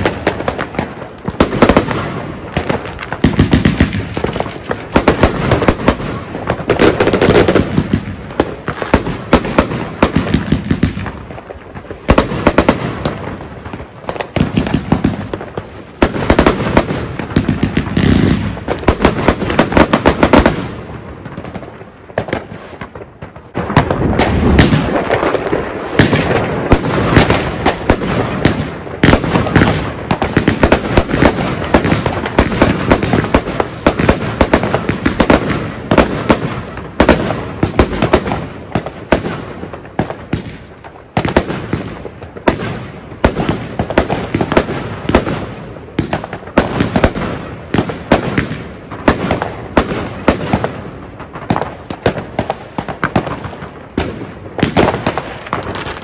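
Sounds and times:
firework bangs and crackling pops: 0.0s - 56.0s.

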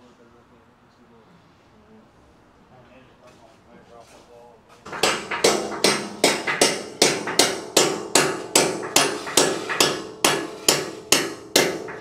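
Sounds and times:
hammer blows on metal studs: 4.8s - 12.0s.

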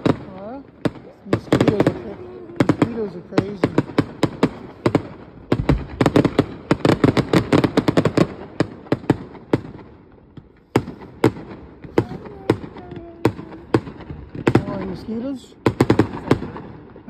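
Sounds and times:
fireworks bangs and crackles: 0.0s - 17.0s.

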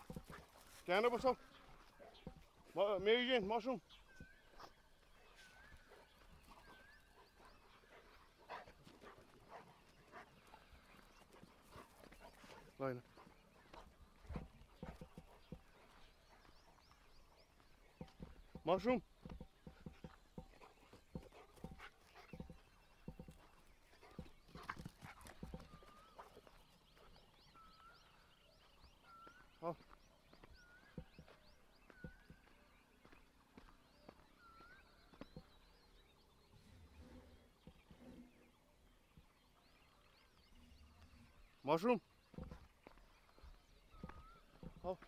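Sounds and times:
footsteps on dry ground: 0.0s - 2.8s, 3.8s - 36.0s
bird chirps: 0.0s - 45.0s
bird whistling and chirping: 34.1s - 36.0s, 43.3s - 44.8s.

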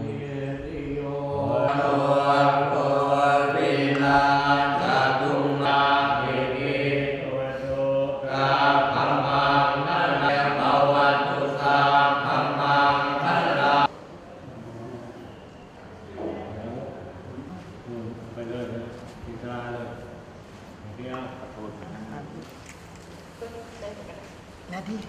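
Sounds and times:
monks chanting: 0.0s - 15.4s.

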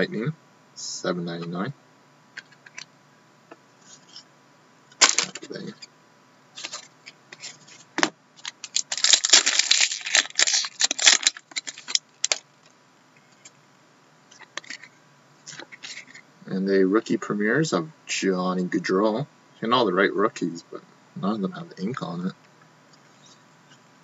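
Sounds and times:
foil wrapper tearing and crinkling: 5.0s - 5.4s, 8.4s - 12.4s.

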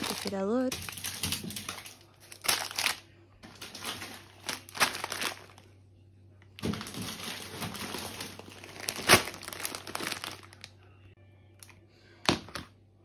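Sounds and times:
plastic packaging crinkling: 0.0s - 5.7s, 6.6s - 10.8s
sharp plastic crackle: 0.0s - 5.7s, 6.6s - 10.8s.

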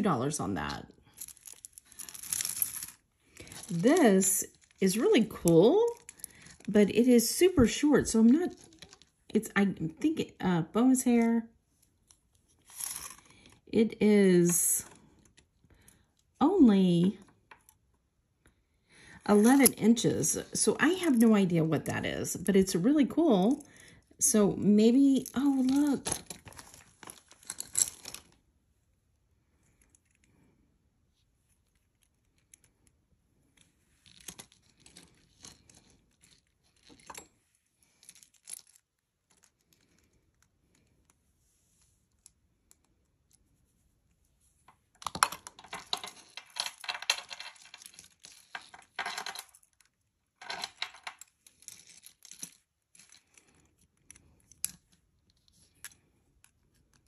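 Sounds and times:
metal jewelry clinking: 1.1s - 6.6s, 25.1s - 28.3s, 45.0s - 49.8s, 50.4s - 54.8s.

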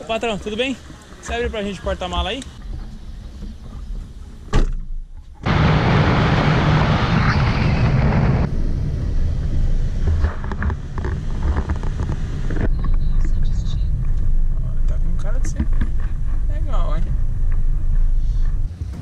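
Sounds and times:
car engine and road noise: 0.0s - 19.0s
bang: 4.5s - 11.0s
wind rushing over microphone: 5.4s - 18.7s.

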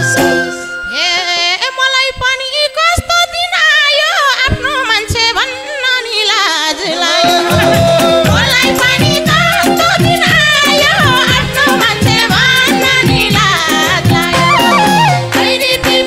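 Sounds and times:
wavering lead melody: 6.6s - 15.8s
rhythm section playing: 7.1s - 16.0s
hand drum strikes: 7.4s - 15.0s.

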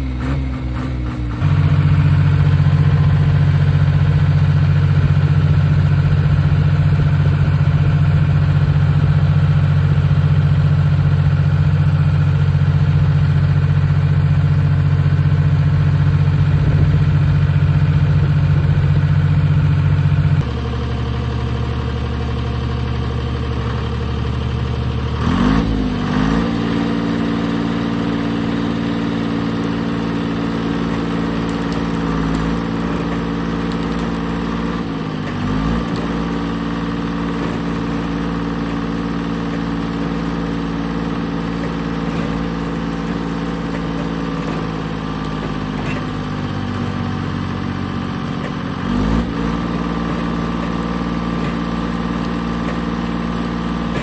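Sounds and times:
diesel engine running: 0.0s - 54.0s.

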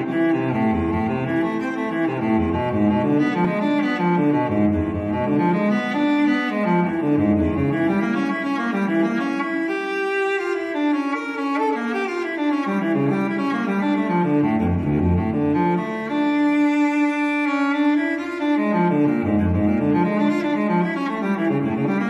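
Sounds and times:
slow low string music: 0.0s - 22.0s.

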